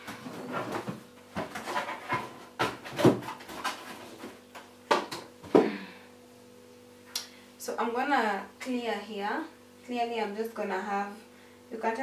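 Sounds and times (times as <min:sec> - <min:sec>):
cardboard box knocks and rustles: 0:00.2 - 0:05.6.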